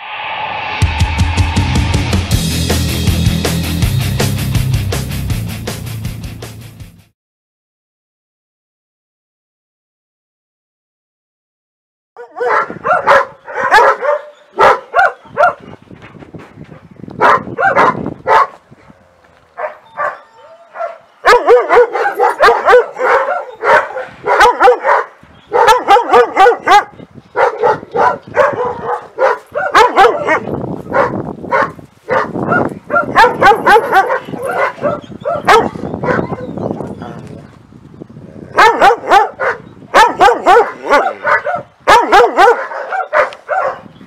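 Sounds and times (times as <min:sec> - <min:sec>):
dog barking: 0:12.2 - 0:15.7, 0:17.2 - 0:18.6, 0:19.6 - 0:37.2, 0:38.5 - 0:43.9.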